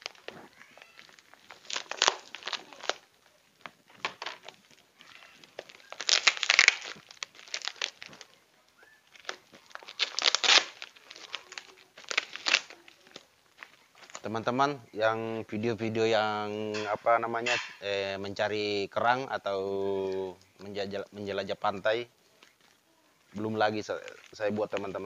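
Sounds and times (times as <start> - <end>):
plastic wrapping crinkling: 0.0 - 14.3, 21.8 - 25.0.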